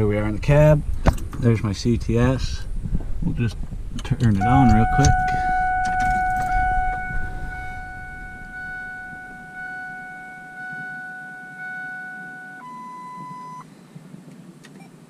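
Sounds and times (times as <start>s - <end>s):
higher electronic tone: 4.4s - 13.6s
steady electronic beep tone: 4.4s - 13.6s.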